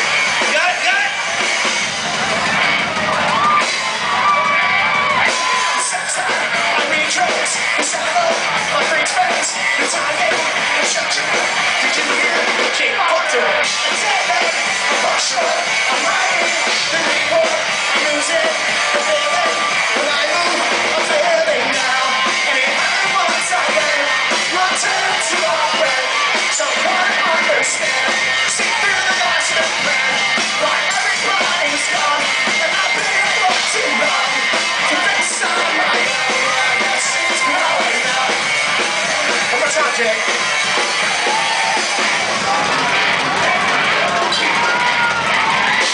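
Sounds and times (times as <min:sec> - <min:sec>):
drum kit: 0:00.0 - 0:45.9
person singing: 0:05.6 - 0:41.4.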